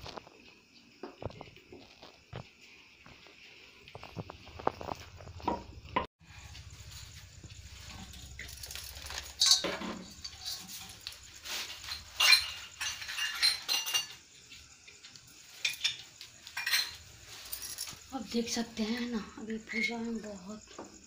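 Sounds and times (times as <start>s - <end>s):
metal and glass objects clinking: 7.8s - 14.3s, 15.5s - 18.1s.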